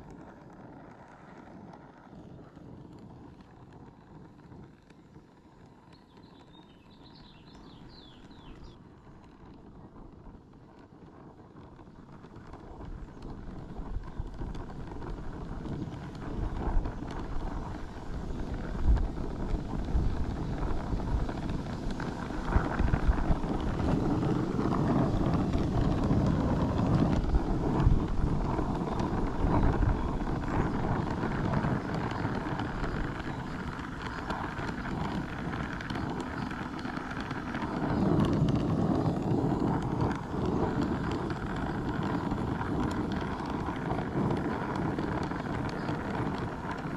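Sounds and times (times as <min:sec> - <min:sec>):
torch flame rushing: 0:12.0 - 0:46.9.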